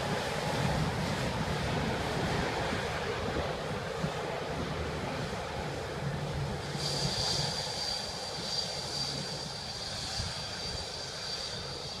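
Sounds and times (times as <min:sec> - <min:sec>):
jet engines whining: 0:00.0 - 0:12.0.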